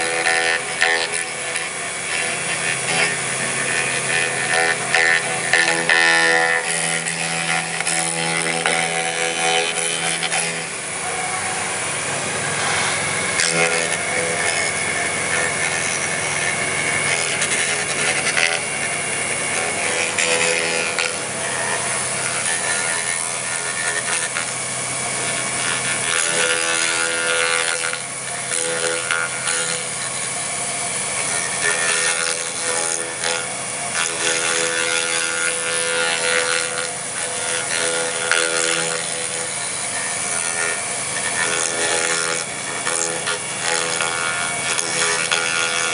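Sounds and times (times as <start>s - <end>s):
router bit rasping wood: 0.0s - 45.9s
spindle whine: 0.0s - 45.9s.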